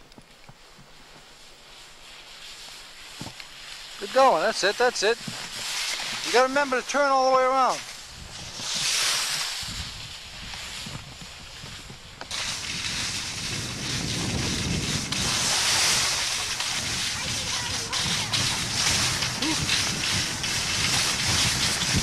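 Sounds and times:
skis sliding on snow: 0:00.0 - 0:22.0
wind buffeting microphone: 0:08.0 - 0:22.0.

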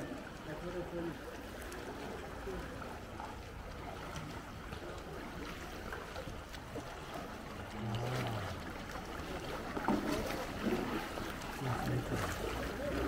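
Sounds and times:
canoe paddles splashing: 0:00.0 - 0:13.0
steady wash of water: 0:00.0 - 0:13.0.

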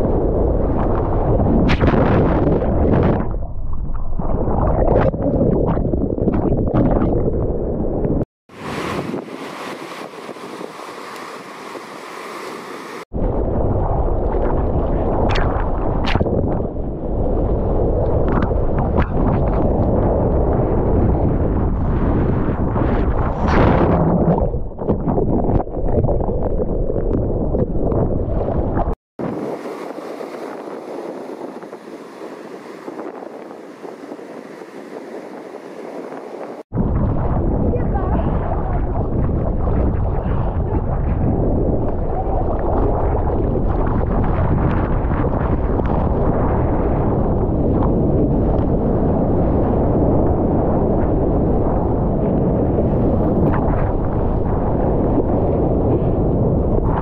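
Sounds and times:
wind buffeting microphone: 0:00.0 - 0:12.0, 0:13.0 - 0:57.0
ocean spray splashing: 0:08.5 - 0:13.1, 0:29.2 - 0:36.7
rushing water: 0:08.5 - 0:13.1, 0:28.2 - 0:36.7.

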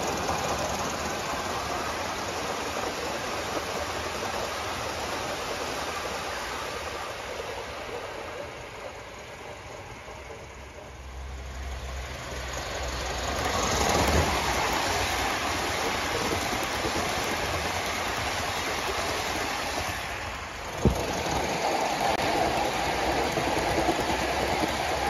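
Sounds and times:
model train wheels rolling on rails: 0:00.0 - 0:25.0.

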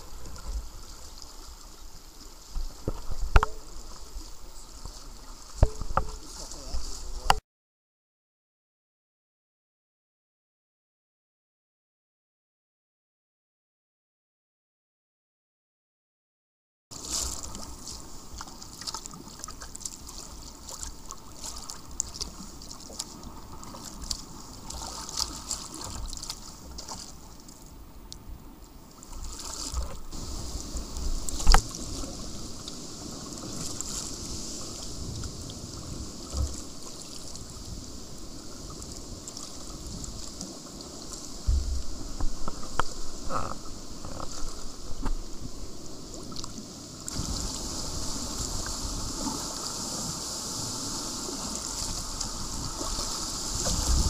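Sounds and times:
water splashing and trickling: 0:00.0 - 0:07.4, 0:16.9 - 0:28.2, 0:28.8 - 0:54.0
wind gusts on microphone: 0:30.1 - 0:54.0.

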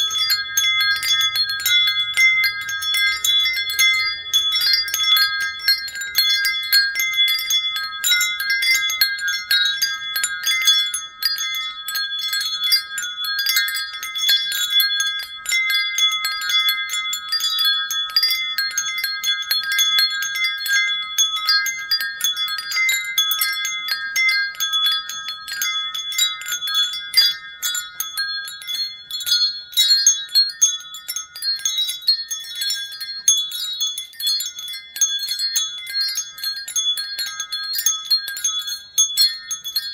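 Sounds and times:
wind chimes ringing: 0:00.0 - 0:39.9.

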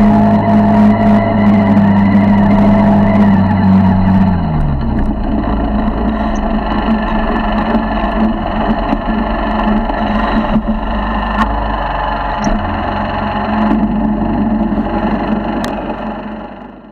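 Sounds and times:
small motorbike engine running: 0:00.0 - 0:16.9.

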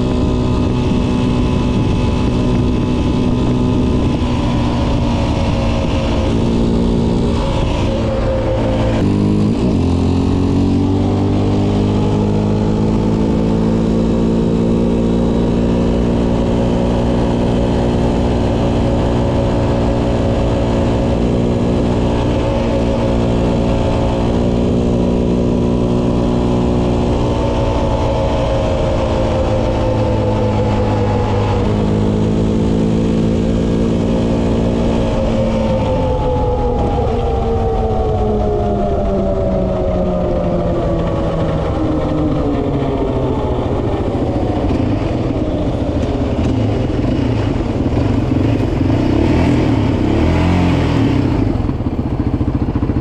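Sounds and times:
quad bike engine running: 0:00.0 - 0:53.0.

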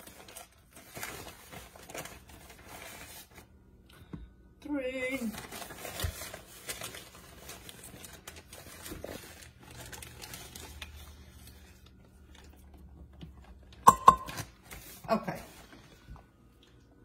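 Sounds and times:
plastic bag crinkling: 0:00.0 - 0:03.5, 0:05.1 - 0:12.7.

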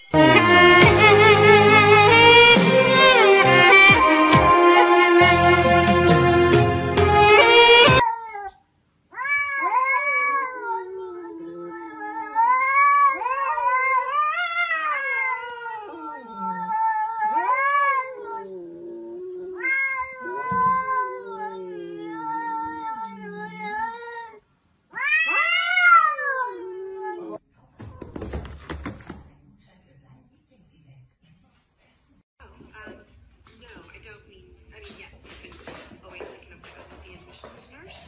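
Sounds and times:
cat yowling: 0:07.4 - 0:27.4.

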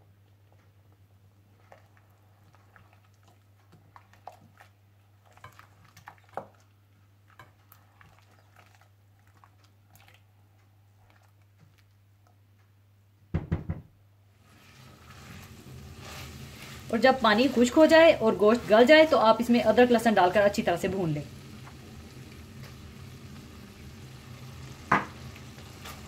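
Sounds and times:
spatula knocking on saucepan: 0:13.3 - 0:13.8.

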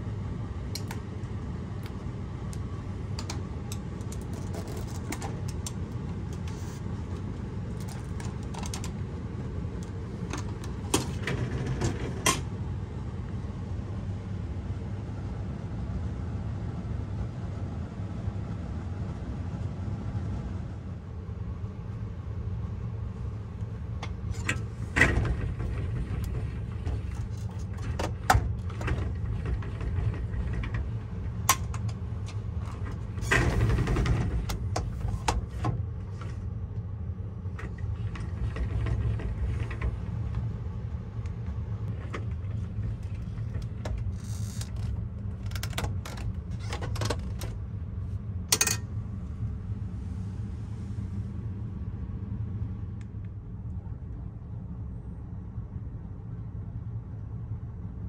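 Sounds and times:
steady low hum: 0:00.0 - 0:58.0
sharp clicks and knocks: 0:02.6 - 0:06.6, 0:24.0 - 0:36.4.

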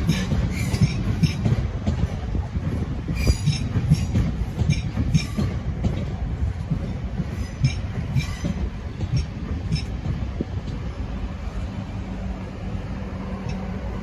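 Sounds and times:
wheels clicking over rail joints: 0:00.0 - 0:11.0
train wheels rumbling on rails: 0:00.0 - 0:14.0.

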